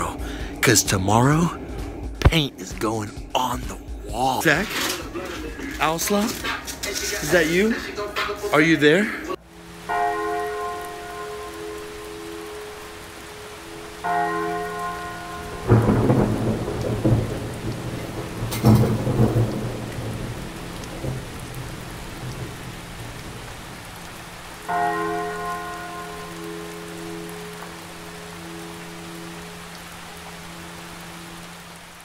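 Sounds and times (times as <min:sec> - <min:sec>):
steady rain: 0:00.0 - 0:32.0
deep bell tolling: 0:09.9 - 0:21.7
thunder rolling: 0:14.0 - 0:25.8
sharp crack of thunder: 0:15.4 - 0:24.1.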